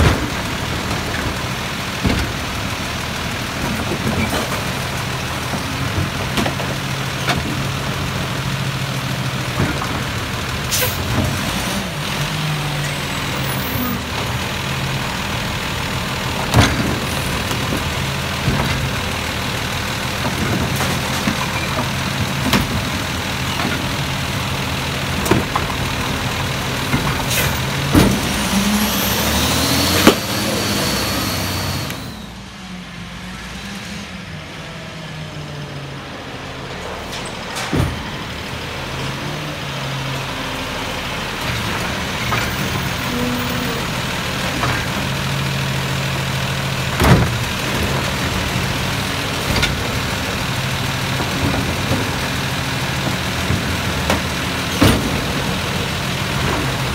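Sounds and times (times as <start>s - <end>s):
diesel truck engine running: 0.0s - 56.9s
hydraulic arm lifting: 25.4s - 32.4s
carts banging against metal: 46.8s - 56.9s.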